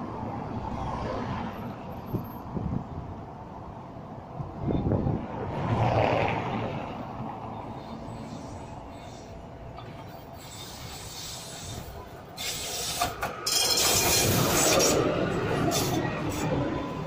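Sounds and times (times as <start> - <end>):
tram cars rattling: 0.0 - 17.0
tram wheels rolling on rails: 3.1 - 17.0.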